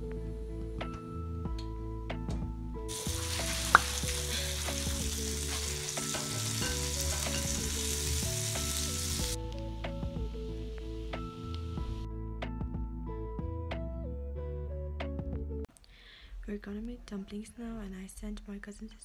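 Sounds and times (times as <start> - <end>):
background music: 0.0 - 18.4
butter and bread sizzling: 2.9 - 9.4.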